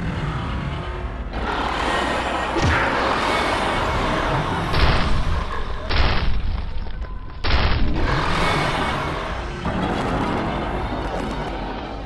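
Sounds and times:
booming cartoon impacts: 0:07.4 - 0:08.9.

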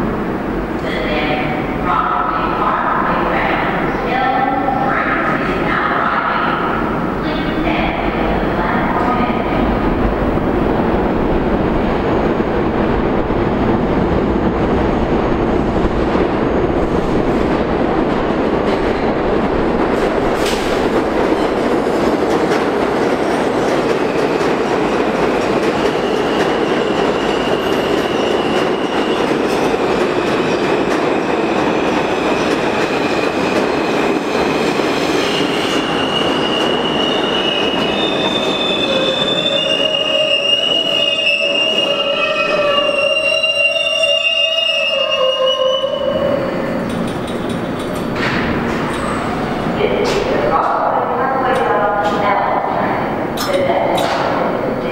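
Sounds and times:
train wheels rumbling on rails: 0:06.3 - 0:54.9
train brakes squealing: 0:26.0 - 0:29.3, 0:34.4 - 0:46.6.

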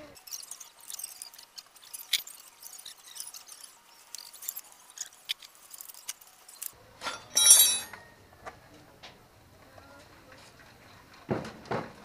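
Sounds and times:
loose metal parts jangling: 0:00.2 - 0:08.0.

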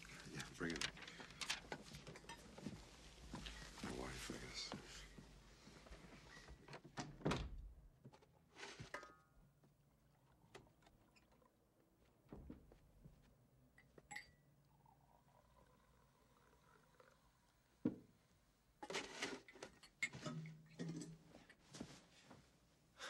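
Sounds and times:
door thunks and clicks: 0:06.8 - 0:07.8.

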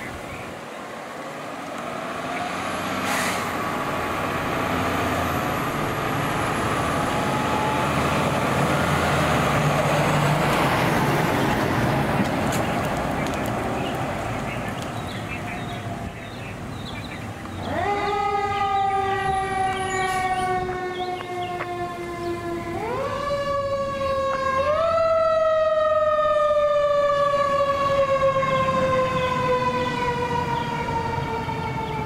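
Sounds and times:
fire engine siren wailing: 0:01.2 - 0:16.1, 0:17.2 - 0:32.0.

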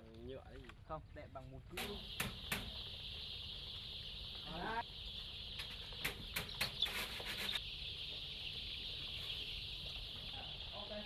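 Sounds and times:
chicks peeping: 0:00.0 - 0:11.0
sharp clicks or knocks: 0:01.8 - 0:02.7.

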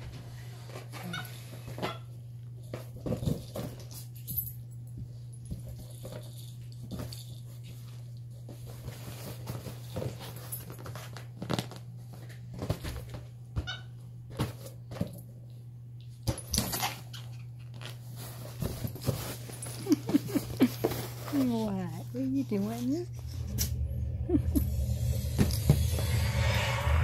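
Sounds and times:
steady low hum: 0:18.2 - 0:27.0.

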